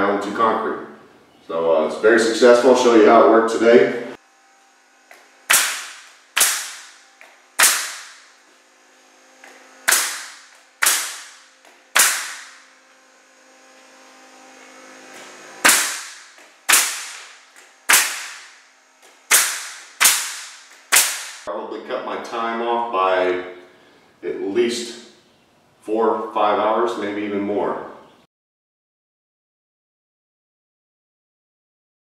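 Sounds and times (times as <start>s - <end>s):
pneumatic pinner firing shots: 5.1s - 8.4s, 9.4s - 12.8s, 15.1s - 21.5s.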